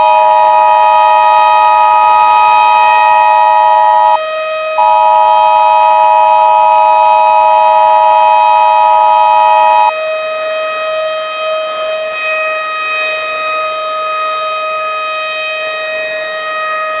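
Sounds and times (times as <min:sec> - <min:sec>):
electronic alarm tones: 0:00.0 - 0:04.2, 0:04.8 - 0:09.9.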